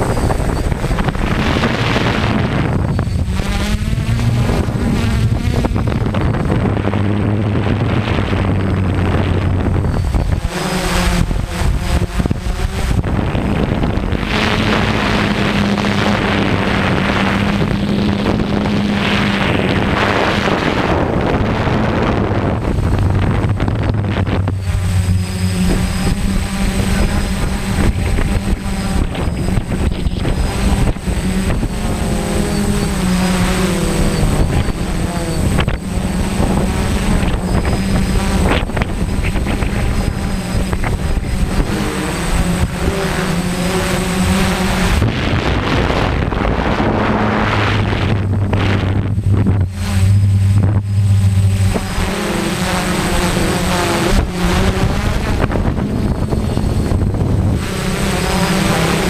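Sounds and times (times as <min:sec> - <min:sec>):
drone propellers whirring: 0:00.0 - 0:59.0
wind on microphone: 0:00.0 - 0:59.0.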